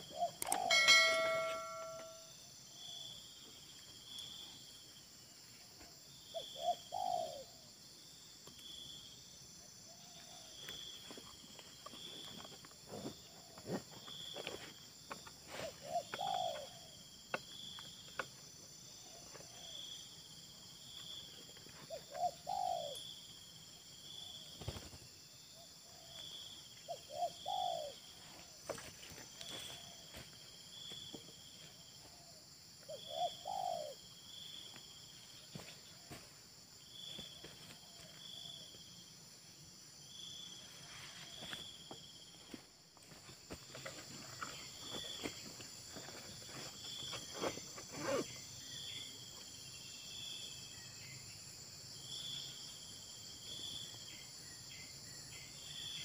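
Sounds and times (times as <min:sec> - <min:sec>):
doves cooing: 0:00.0 - 0:02.2, 0:06.4 - 0:07.6, 0:15.5 - 0:17.0, 0:21.9 - 0:23.0, 0:26.9 - 0:28.2, 0:32.0 - 0:34.1
insect chirping in pulses: 0:00.0 - 0:56.0.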